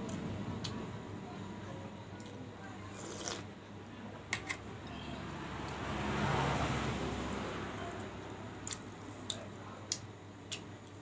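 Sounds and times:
passing road vehicle rush: 5.3 - 7.8.

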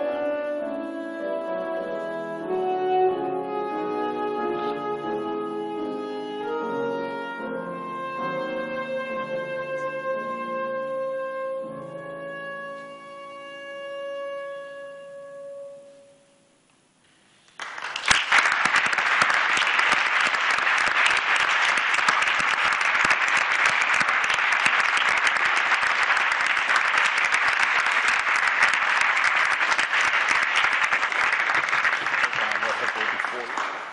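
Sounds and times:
alto saxophone note: 0.0 - 16.5
piano: 0.0 - 16.6
audience applause: 17.6 - 33.9.

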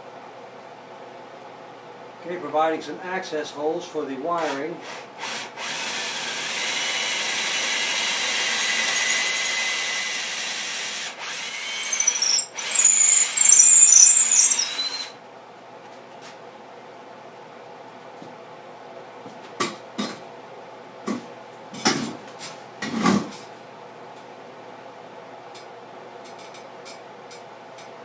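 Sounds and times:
power drill boring wood: 5.2 - 15.1
high-pitched squeal: 8.6 - 15.1.

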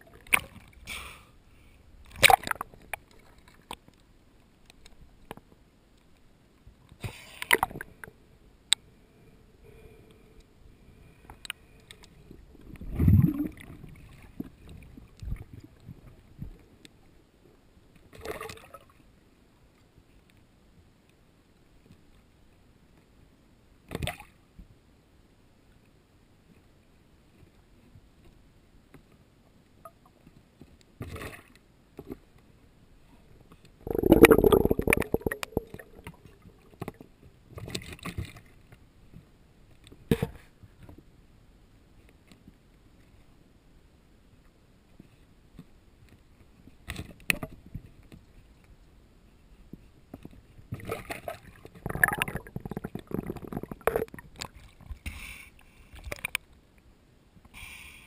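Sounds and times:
underwater bubbles rushing: 12.6 - 16.1, 33.8 - 36.7, 50.8 - 55.0.

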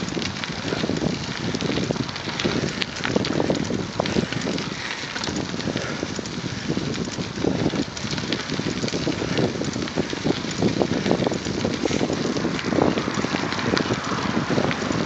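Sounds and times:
small ticks and rattles: 0.0 - 15.0
tyres rolling over dirt path: 0.0 - 15.0
wind buffeting microphone: 0.0 - 15.0.

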